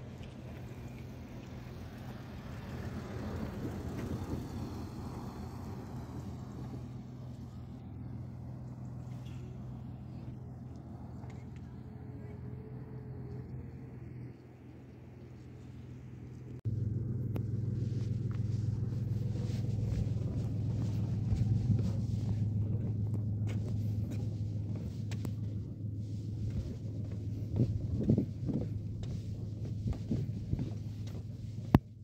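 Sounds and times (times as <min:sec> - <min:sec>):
low rumble: 0:00.0 - 0:32.0
footsteps on wooden boards: 0:26.4 - 0:31.9.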